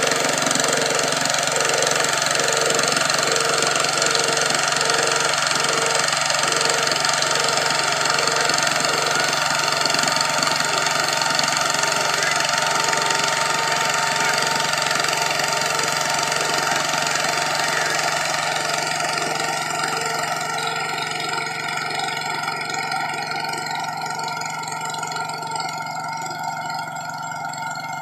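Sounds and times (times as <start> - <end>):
tractor engine under load: 0.0 - 28.0.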